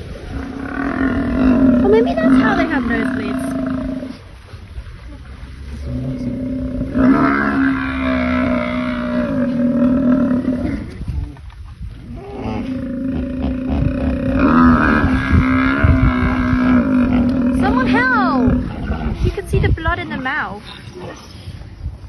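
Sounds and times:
buffalo bellowing in distress: 0:05.9 - 0:10.9, 0:12.2 - 0:19.2.

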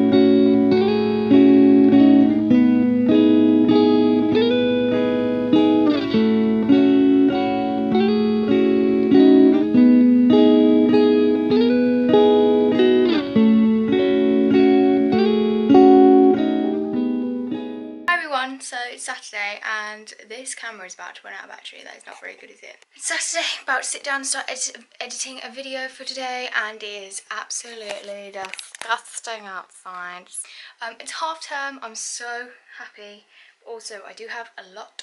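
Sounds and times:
plucked guitar melody: 0:00.0 - 0:18.1.

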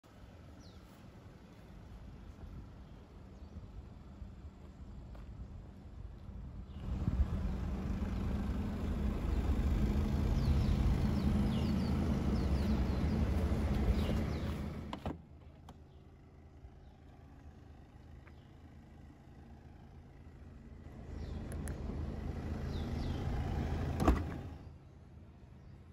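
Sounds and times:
low hum: 0:00.0 - 0:25.7
car engine idling: 0:06.8 - 0:24.8.

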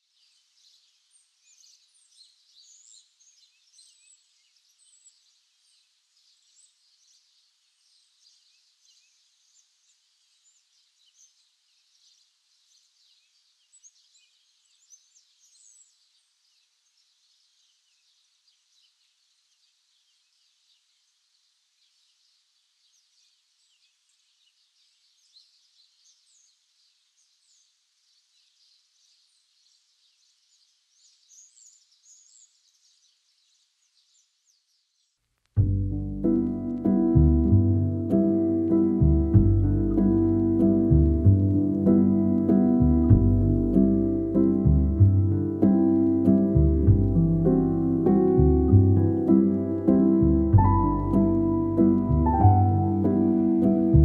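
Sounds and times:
light hiss: 0:00.0 - 0:37.0
small birds chirping: 0:00.0 - 0:54.0.

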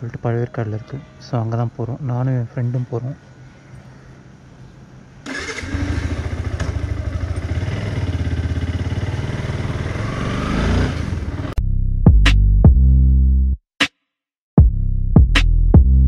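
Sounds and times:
motorcycle engine accelerating: 0:05.3 - 0:11.6
electronic music with drum beat: 0:12.0 - 0:12.9, 0:14.6 - 0:16.0.

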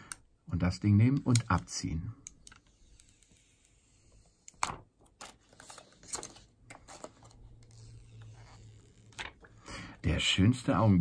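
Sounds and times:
plastic film peeling and crinkling: 0:05.0 - 0:09.4.

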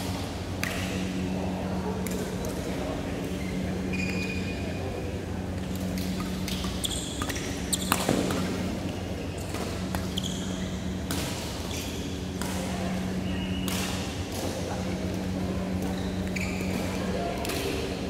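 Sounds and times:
low hum of hall: 0:00.0 - 0:18.0
shoes squeaking on court: 0:06.2 - 0:10.9, 0:15.8 - 0:17.0
racket hitting shuttlecock: 0:07.2 - 0:08.6, 0:11.0 - 0:11.6, 0:13.5 - 0:14.5.

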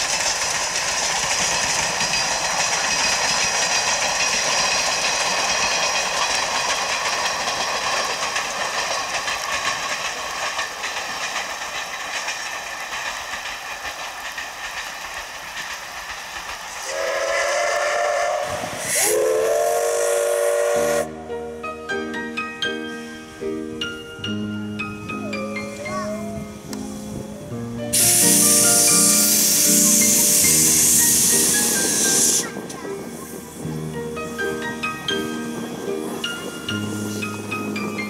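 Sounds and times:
steam locomotive passing: 0:00.0 - 0:38.0
steam whistle blasts: 0:16.8 - 0:21.2.

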